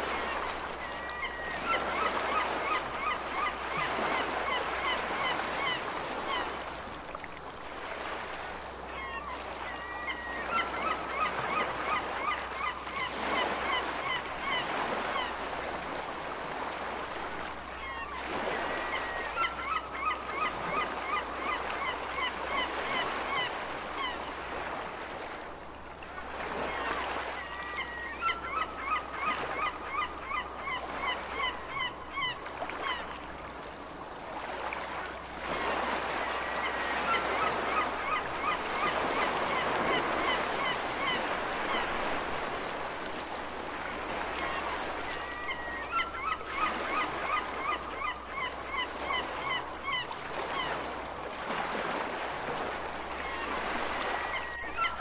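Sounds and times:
ocean waves washing: 0.0s - 55.0s
seagulls yelping cries: 0.1s - 6.5s, 8.9s - 15.3s, 17.7s - 24.2s, 26.6s - 33.2s, 35.6s - 42.4s, 43.8s - 50.8s, 53.2s - 55.0s.

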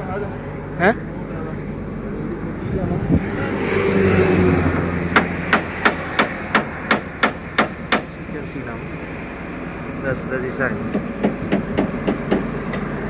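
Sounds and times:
sharp knocks: 5.1s - 8.1s, 10.9s - 12.9s.

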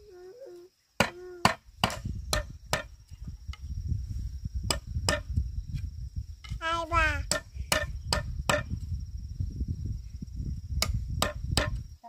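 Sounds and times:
tool chopping bamboo: 10.8s - 11.8s.

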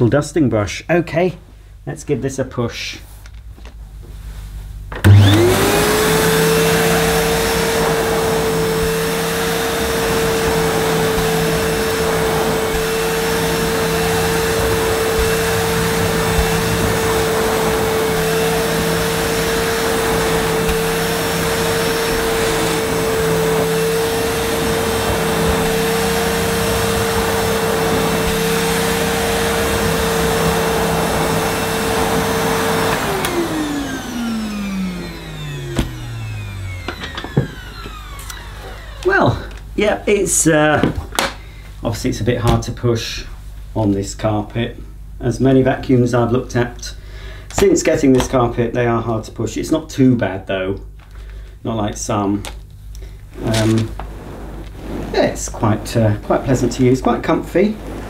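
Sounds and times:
vacuum cleaner motor whine: 4.9s - 41.4s, 51.9s - 58.0s
vacuum suction rush: 5.0s - 39.0s, 53.2s - 58.0s.

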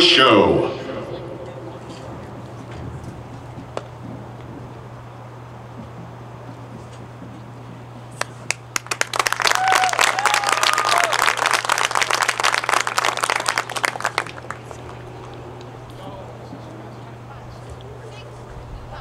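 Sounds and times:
crowd applauding: 8.2s - 15.8s
cheering shouts: 9.4s - 11.6s.

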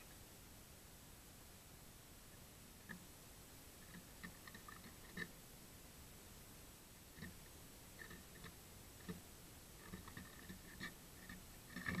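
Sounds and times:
bird pecking on wood: 3.8s - 5.4s, 7.2s - 12.0s.

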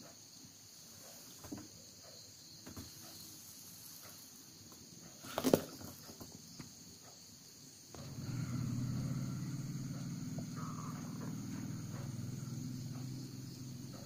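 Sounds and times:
low buzzing hum: 7.9s - 14.0s.

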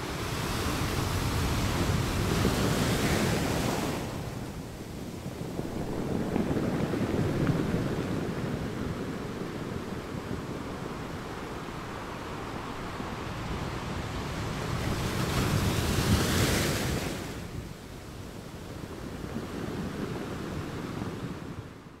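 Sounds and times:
ocean waves breaking: 0.0s - 17.6s.

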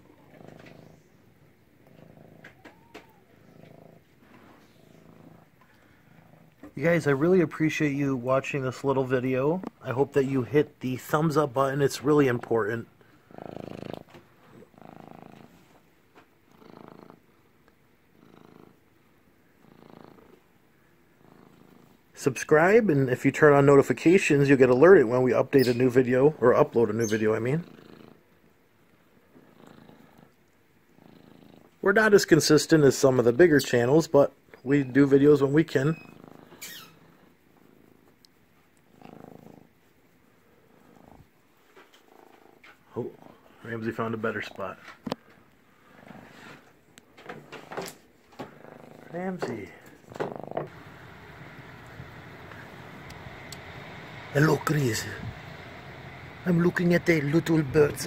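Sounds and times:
cat purring: 0.0s - 22.7s, 23.4s - 46.8s, 48.3s - 58.0s.

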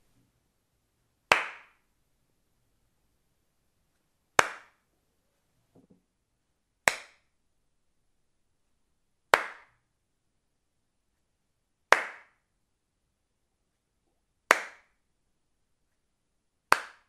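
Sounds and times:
hand claps: 1.3s - 1.8s, 4.4s - 4.8s, 6.9s - 7.3s, 9.3s - 9.8s, 11.9s - 12.5s, 14.5s - 15.0s, 16.7s - 17.0s.

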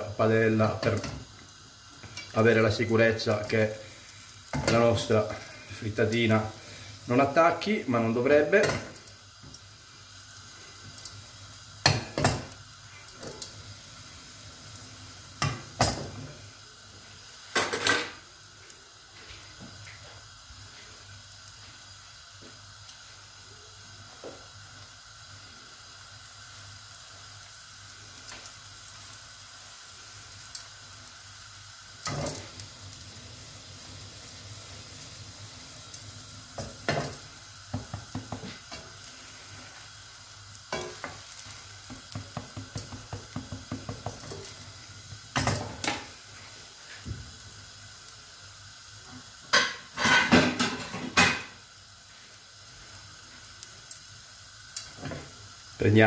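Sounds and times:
egg and bread sizzling in a pan: 0.0s - 56.0s
pan clattering on burner grate: 32.0s - 32.6s, 49.5s - 51.5s.

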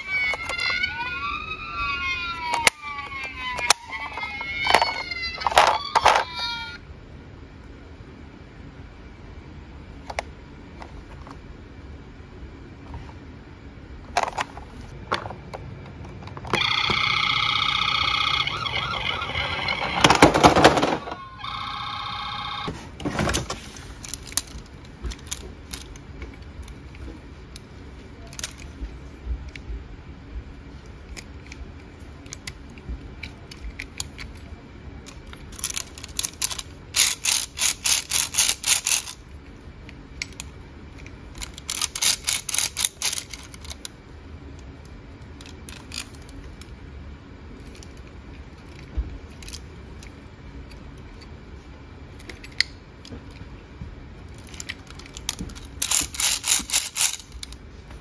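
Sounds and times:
toy parts clicking and rattling: 0.0s - 6.8s, 14.1s - 15.3s, 16.4s - 22.6s, 23.3s - 28.8s, 30.8s - 46.8s, 47.5s - 51.3s, 52.1s - 53.4s, 54.3s - 57.6s.

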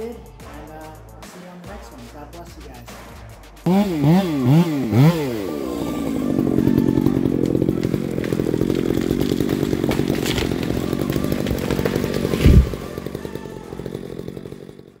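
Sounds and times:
chainsaw idling: 3.6s - 15.0s
wood cracking: 4.0s - 15.0s
tree trunk thudding on ground: 7.4s - 13.1s.

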